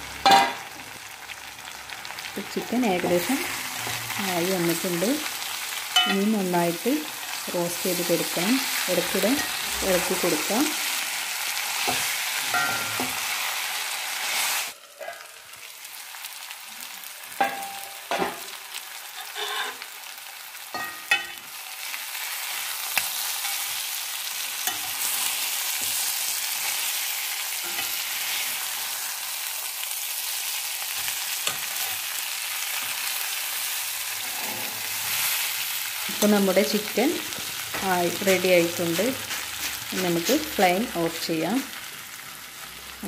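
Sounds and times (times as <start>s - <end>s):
chicken sizzling in oil: 0.0s - 43.0s
metal spatula clinking on pan: 6.0s - 6.3s, 12.5s - 13.1s, 20.7s - 21.4s.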